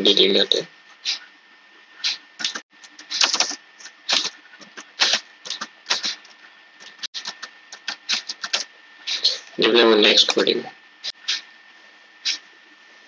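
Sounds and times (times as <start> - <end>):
laptop keyboard typing: 2.4 - 8.7.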